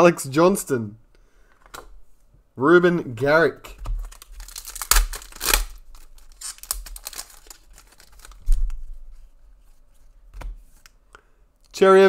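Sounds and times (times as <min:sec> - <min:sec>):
cards and wrappers crinkling: 0:03.7 - 0:09.0.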